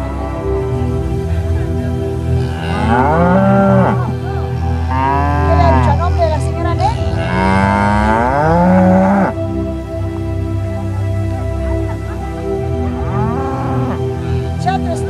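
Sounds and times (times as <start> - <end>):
cattle mooing: 2.4 - 9.4, 12.8 - 14.1.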